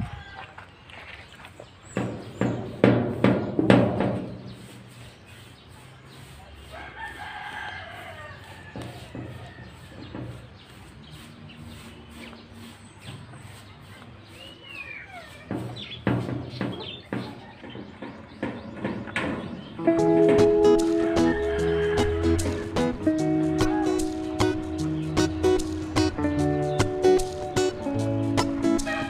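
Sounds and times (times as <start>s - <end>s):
brush scraping metal roof: 1.7s - 29.0s
rooster crowing: 6.7s - 10.0s, 20.9s - 22.9s.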